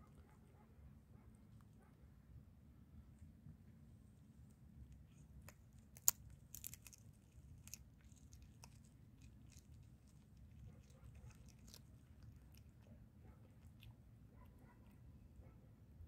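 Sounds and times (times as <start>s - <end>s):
cat chewing meat and bone: 4.8s - 15.7s.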